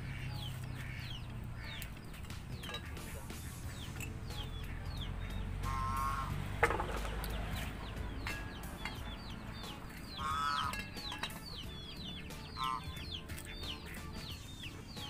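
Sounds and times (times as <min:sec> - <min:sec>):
chickens chirping: 0:00.0 - 0:15.0
metal lid clinking on pot: 0:02.6 - 0:03.0, 0:10.6 - 0:11.4.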